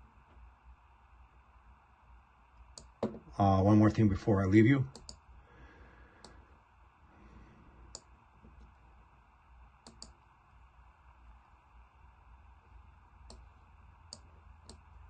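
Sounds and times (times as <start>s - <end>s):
faint room hiss: 0.0s - 15.0s
computer mouse clicks: 4.9s - 5.2s, 7.9s - 8.8s, 9.8s - 10.2s, 13.2s - 13.5s, 14.1s - 15.0s.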